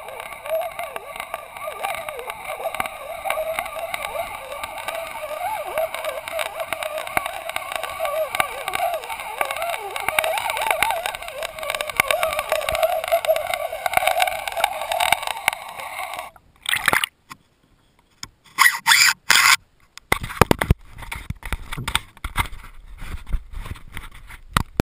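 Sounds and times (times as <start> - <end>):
underwater rushing: 0.0 - 17.1.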